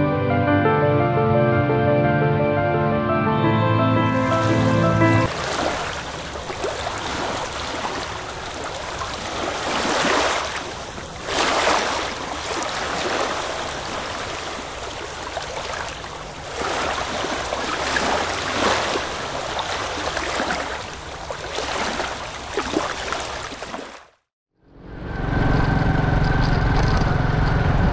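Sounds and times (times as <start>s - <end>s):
surf washing onto rocky shore: 5.3s - 22.0s.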